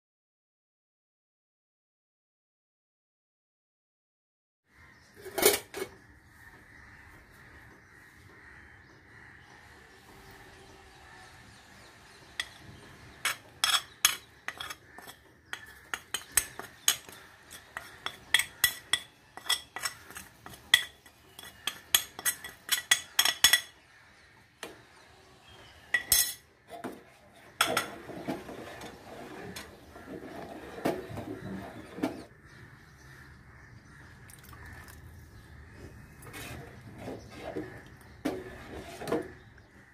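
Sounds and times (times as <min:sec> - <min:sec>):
spatula stirring liquid in pan: 0:12.2 - 0:23.6, 0:36.2 - 0:39.4
metal spoon clinking on plate: 0:26.0 - 0:26.4.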